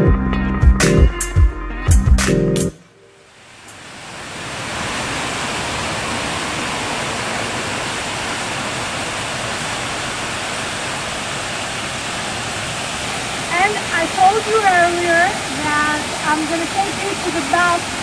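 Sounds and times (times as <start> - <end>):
waterfall rushing: 3.2 - 18.0.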